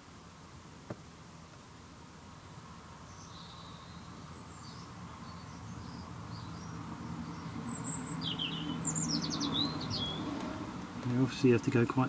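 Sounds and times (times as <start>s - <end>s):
birds chirping: 2.4s - 12.0s.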